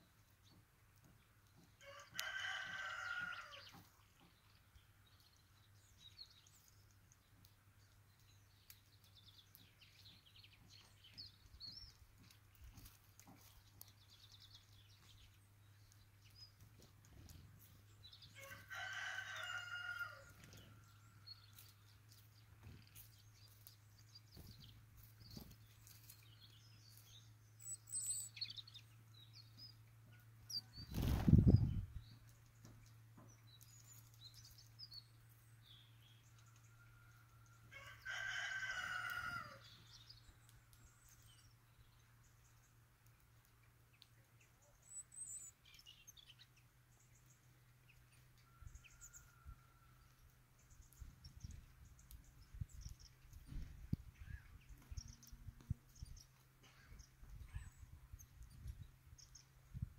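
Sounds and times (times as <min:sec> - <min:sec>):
small birds chirping: 0:00.0 - 0:59.9
rooster crowing: 0:01.8 - 0:03.6, 0:18.4 - 0:20.4, 0:37.7 - 0:39.6.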